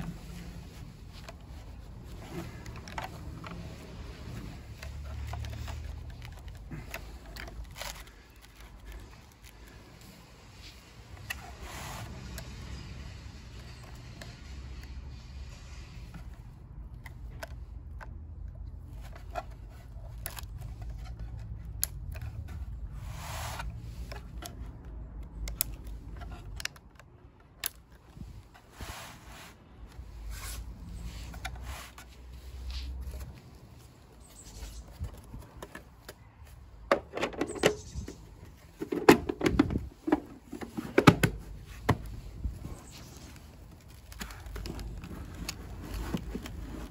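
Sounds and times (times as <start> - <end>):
plastic clicks and scrapes: 0.0 - 28.8, 29.8 - 46.9
plastic knocks and rattles: 38.8 - 42.1.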